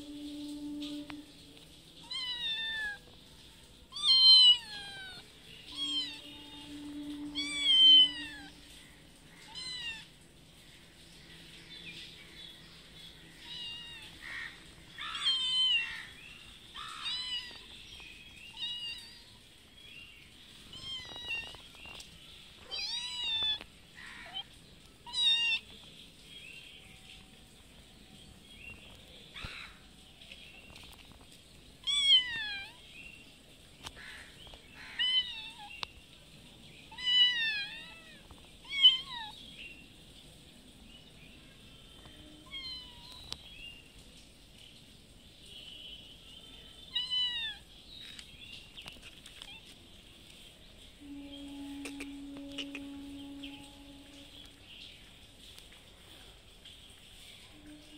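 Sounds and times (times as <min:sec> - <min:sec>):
cats meowing: 0:02.0 - 0:03.1, 0:03.9 - 0:08.8, 0:09.4 - 0:10.2, 0:13.4 - 0:14.2, 0:15.0 - 0:16.1, 0:16.8 - 0:17.7, 0:18.5 - 0:19.4, 0:20.7 - 0:21.7, 0:22.6 - 0:25.8, 0:31.8 - 0:32.8, 0:34.8 - 0:35.8, 0:36.9 - 0:39.4, 0:42.4 - 0:43.4, 0:46.9 - 0:47.7.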